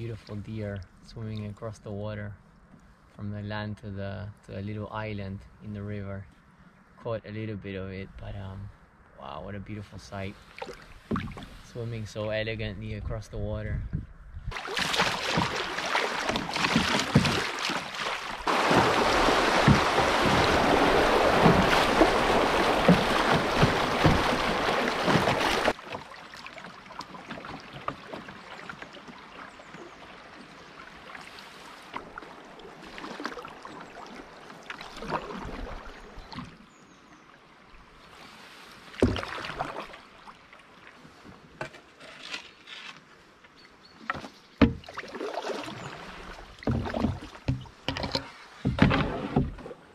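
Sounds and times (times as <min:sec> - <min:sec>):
wind: 0:00.0 - 0:49.9
rushing water: 0:14.5 - 0:41.2, 0:44.1 - 0:49.9.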